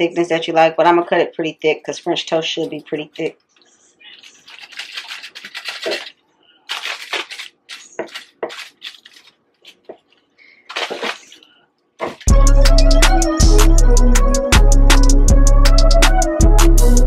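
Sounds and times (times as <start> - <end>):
loud music with steady beat: 12.3 - 17.0.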